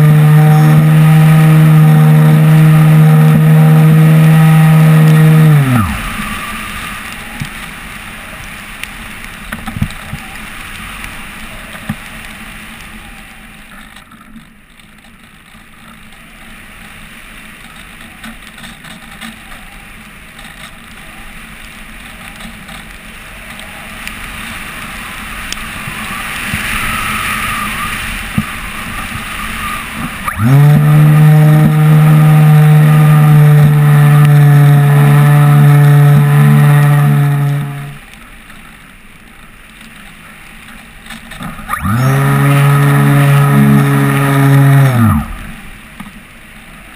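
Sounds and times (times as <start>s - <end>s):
motor and propeller whine: 0.0s - 8.4s, 25.2s - 38.1s, 41.2s - 46.1s.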